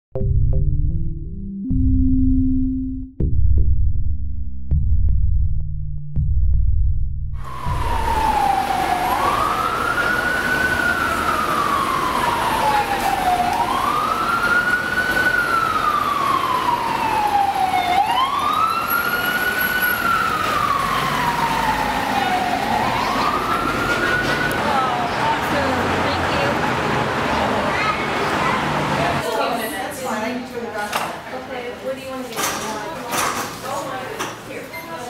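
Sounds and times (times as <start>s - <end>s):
emergency siren wailing: 7.4s - 27.3s
city street traffic: 7.4s - 35.0s.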